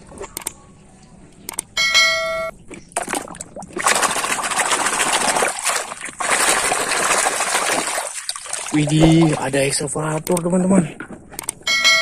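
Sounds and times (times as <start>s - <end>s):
click: 0.2s - 1.7s, 10.2s - 10.5s
muddy water splashing and sloshing: 2.6s - 10.2s.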